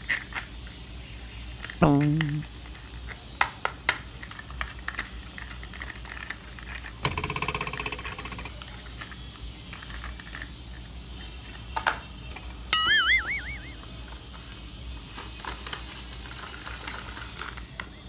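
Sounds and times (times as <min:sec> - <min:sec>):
toy truck buzzing whirr: 0:00.0 - 0:01.8, 0:04.2 - 0:12.5, 0:13.6 - 0:18.0
plastic toy clicks and ticks: 0:03.9 - 0:10.8.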